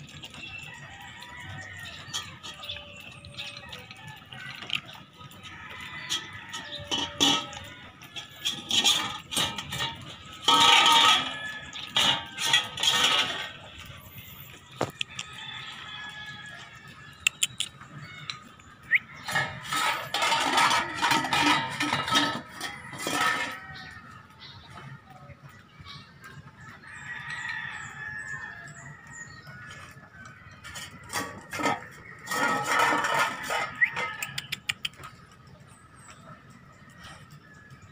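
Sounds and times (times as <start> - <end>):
puppy licking a bowl: 0.0 - 10.6
metal bowl clinking and scraping: 0.0 - 25.0, 25.9 - 37.9
chicken calling: 13.9 - 20.1.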